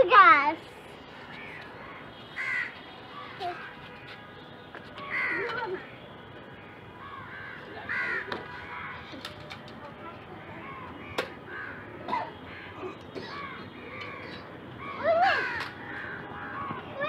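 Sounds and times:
crows cawing: 1.3 - 4.2, 5.0 - 5.9, 6.6 - 9.3, 10.4 - 17.0.

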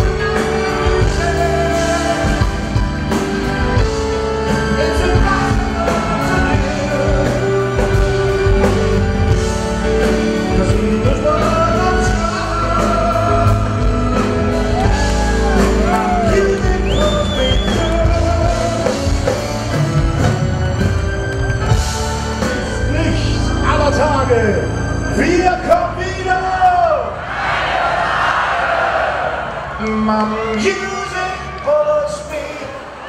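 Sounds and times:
man singing into a microphone: 0.0 - 2.8, 4.6 - 8.6, 10.3 - 14.4, 15.5 - 19.4
live band music with keyboard: 0.0 - 28.1.

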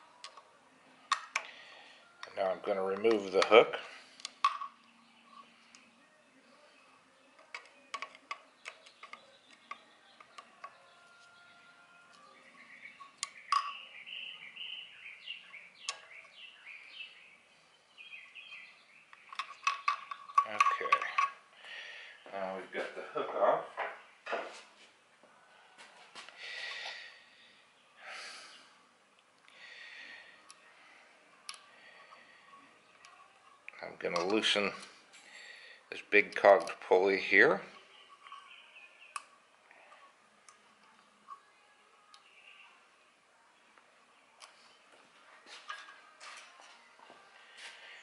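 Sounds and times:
soft breaths: 1.4 - 2.2, 21.5 - 22.3, 24.6 - 33.5, 34.8 - 36.0, 47.0 - 48.0.

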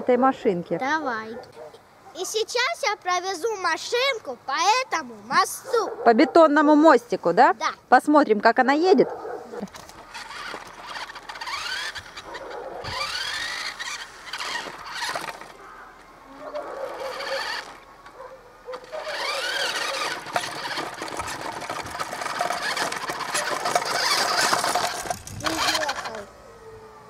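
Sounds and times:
wheels rattling on concrete: 8.9 - 26.3
toy electric motor whining: 9.7 - 26.6.

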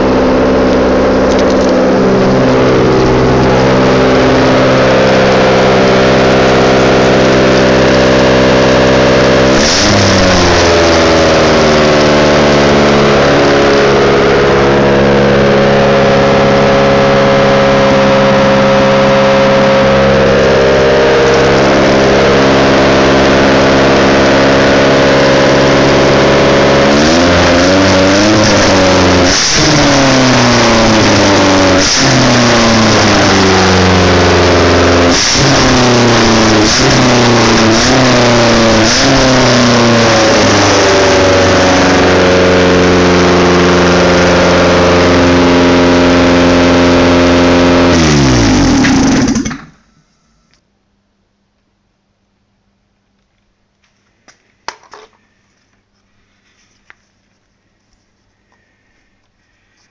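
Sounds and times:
car engine idling and revving: 0.0 - 50.6.

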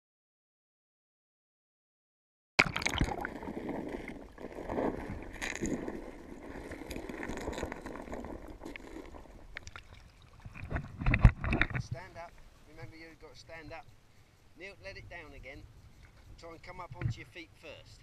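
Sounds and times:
water sloshing and splashing: 2.6 - 11.8.

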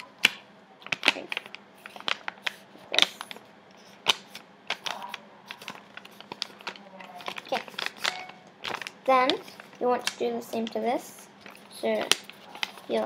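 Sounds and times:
paper crinkling and crackling: 0.8 - 13.0.

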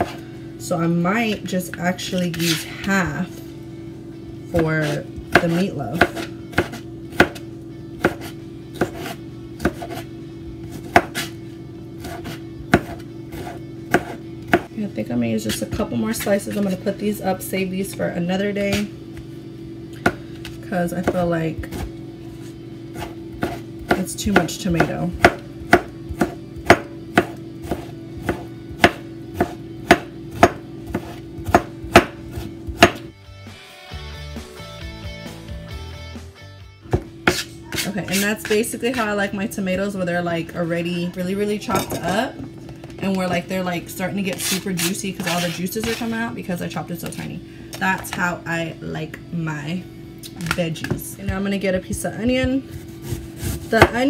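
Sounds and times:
knife chopping on cutting board: 0.0 - 0.2, 4.8 - 7.4, 8.0 - 10.1, 10.7 - 11.3, 12.0 - 14.7, 23.0 - 33.1, 36.9 - 38.7, 44.3 - 46.2, 52.4 - 54.0.

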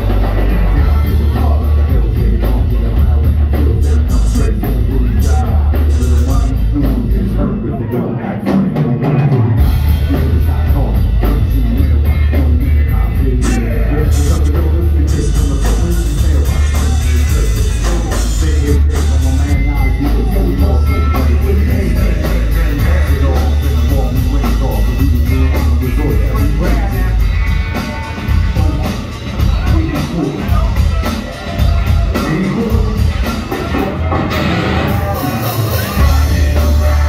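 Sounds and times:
pulsing bass and kick drum: 0.0 - 7.3, 9.6 - 27.5
live rock band playing: 0.0 - 37.0.

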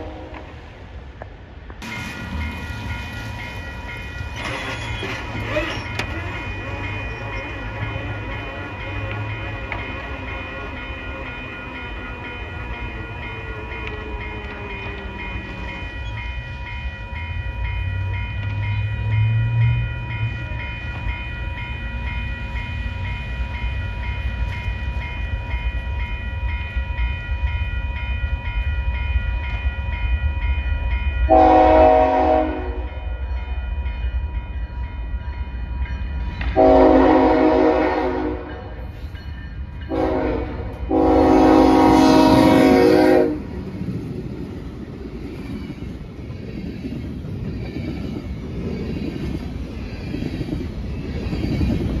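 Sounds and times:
locomotive air horn: 0.0 - 0.5, 31.3 - 32.9, 36.6 - 38.5, 39.9 - 43.5
diesel locomotive rumbling: 0.0 - 52.0
steady ringing: 1.8 - 32.3.

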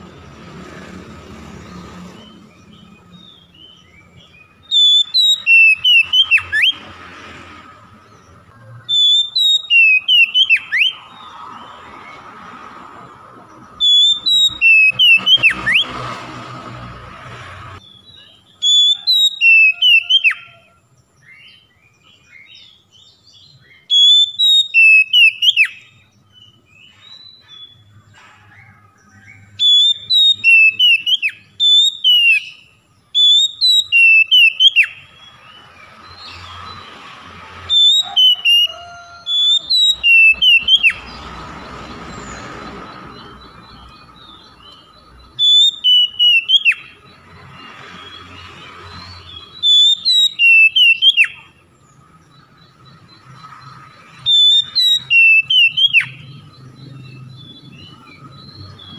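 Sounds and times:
bird singing whistled notes: 2.1 - 6.9, 8.1 - 12.2, 13.5 - 16.0, 17.8 - 28.0, 28.6 - 58.9.

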